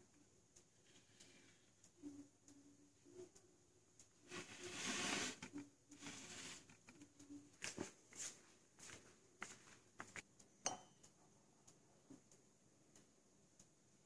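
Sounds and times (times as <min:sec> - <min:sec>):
light clicks and taps: 0:06.6 - 0:13.8.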